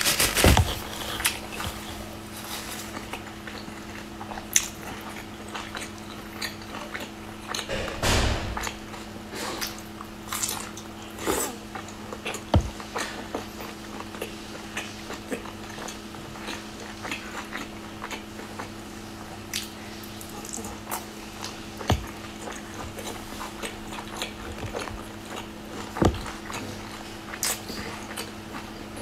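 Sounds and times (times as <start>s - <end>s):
mouth chewing sounds: 0.0s - 29.0s
steady low hum: 0.0s - 29.0s
louder thump: 7.7s - 8.7s.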